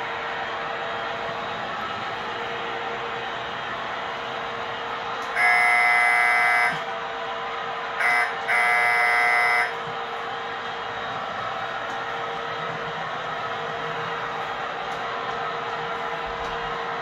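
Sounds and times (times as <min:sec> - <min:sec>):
model train horn blasts: 0:05.3 - 0:06.9, 0:08.0 - 0:09.8.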